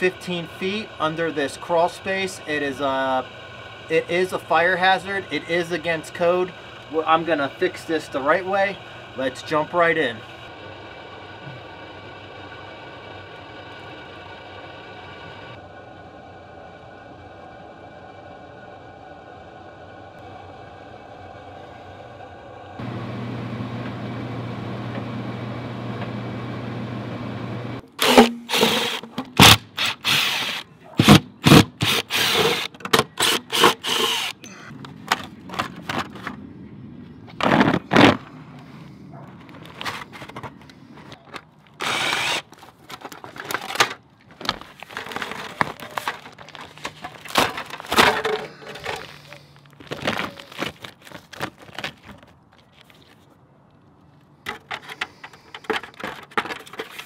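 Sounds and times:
foil duct crackling: 42.4s - 53.3s.

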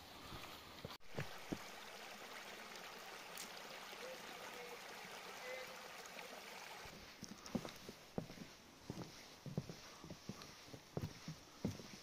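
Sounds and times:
stream running over stones: 0.0s - 8.3s.

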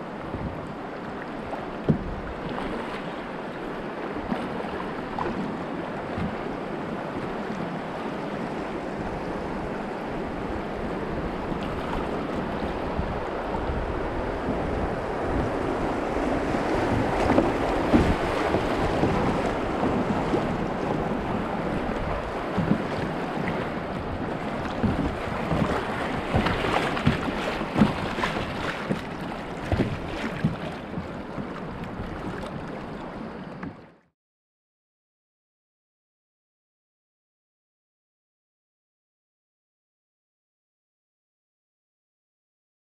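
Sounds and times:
river water rushing: 0.0s - 33.6s
paddle splashes: 0.0s - 34.0s
wind buffeting microphone: 8.6s - 33.8s.

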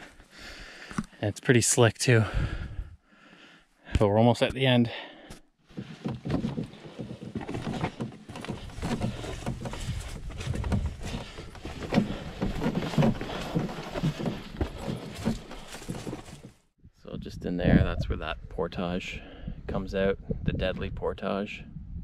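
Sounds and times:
footsteps on rocks: 5.7s - 16.7s
rustling and handling noise: 5.7s - 16.8s.

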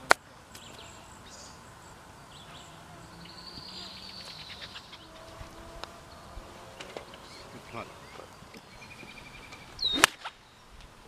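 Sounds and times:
birds chirping: 0.0s - 11.0s
insects buzzing: 0.0s - 11.0s
golf club striking ball: 9.4s - 10.4s.

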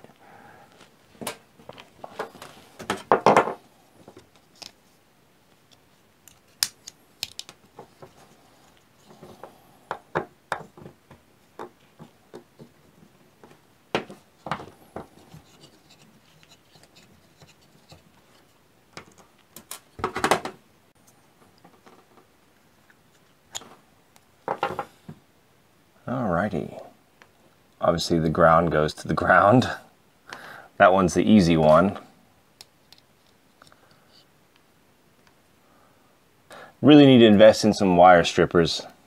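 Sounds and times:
hands handling plug and wires: 5.5s - 12.8s, 13.4s - 24.9s.

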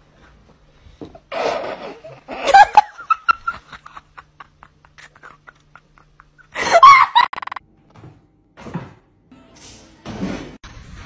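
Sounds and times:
person laughing hard: 1.8s - 7.6s.

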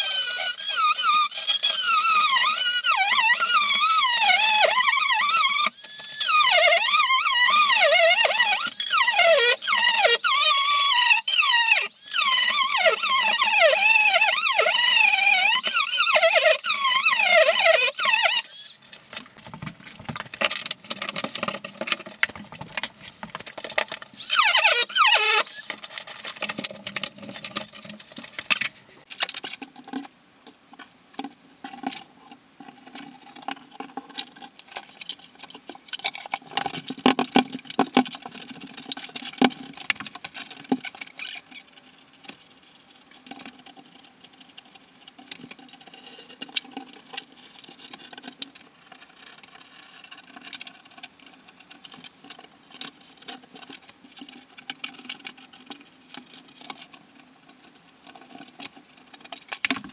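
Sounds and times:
high wavering squeals: 0.0s - 18.8s, 24.2s - 25.7s.

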